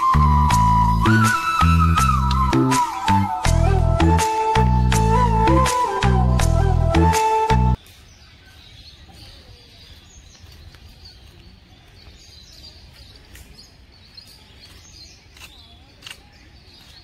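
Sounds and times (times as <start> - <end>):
birds chirping faintly: 7.3 - 17.0.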